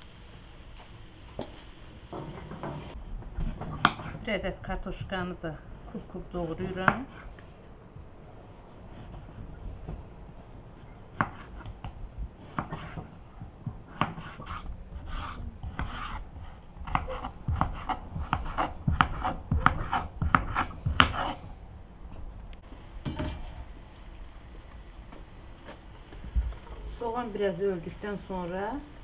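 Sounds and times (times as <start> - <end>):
knife cutting potato on wooden board: 13.9 - 21.4.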